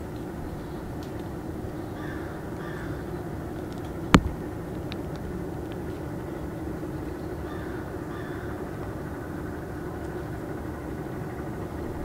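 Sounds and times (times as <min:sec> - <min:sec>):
steady low hum: 0:00.0 - 0:12.0
faint bird calls: 0:01.6 - 0:03.6, 0:06.8 - 0:09.3.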